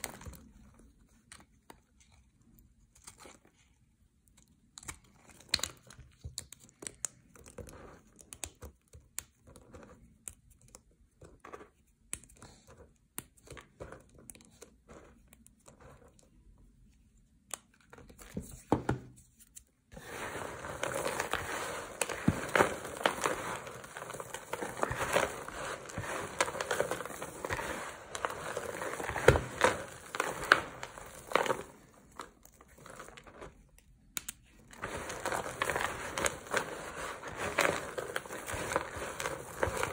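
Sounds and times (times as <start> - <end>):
soap flakes crackling and crunching: 19.5 - 39.9.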